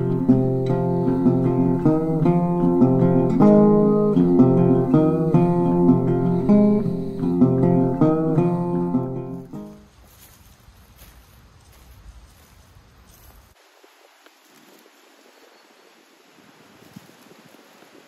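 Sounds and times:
plucked guitar over chords: 0:00.0 - 0:09.8.

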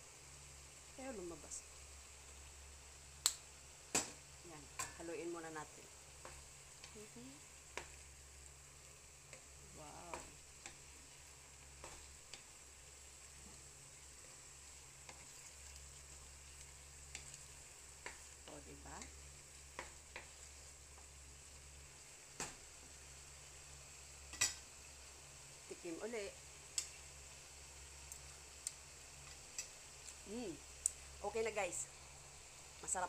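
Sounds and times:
food sizzling in a pan: 0:00.0 - 0:33.0
wooden spatula scraping a pan: 0:15.0 - 0:15.8.

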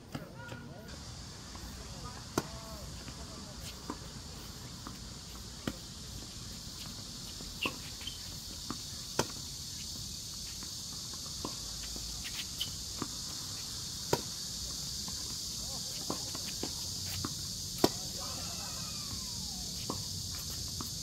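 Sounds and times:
insects chirring: 0:00.1 - 0:21.0
tennis ball bouncing: 0:02.3 - 0:02.6, 0:14.0 - 0:20.9.

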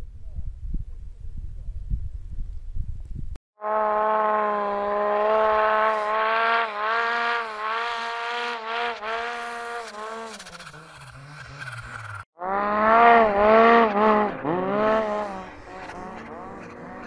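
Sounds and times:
snowmobile engine revving: 0:03.6 - 0:17.0.

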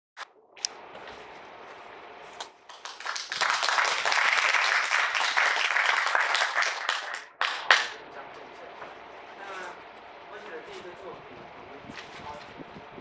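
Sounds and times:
audience applauding: 0:02.6 - 0:08.0.

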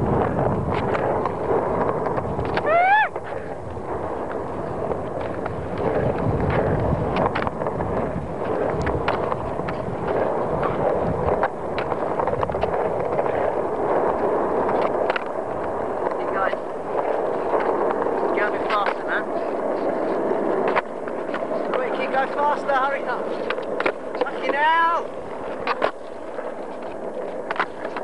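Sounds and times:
skateboard clacking on ground: 0:00.0 - 0:28.0
skateboard wheels rumbling on asphalt: 0:00.0 - 0:28.0.

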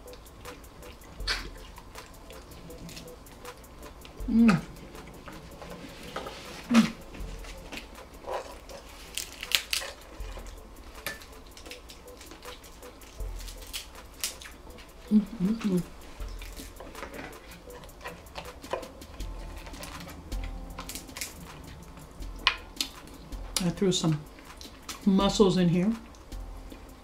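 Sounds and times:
chewing: 0:00.0 - 0:25.1
shellfish being peeled by hand: 0:00.0 - 0:25.2
person humming: 0:04.2 - 0:05.4, 0:06.0 - 0:07.7, 0:15.0 - 0:16.0.

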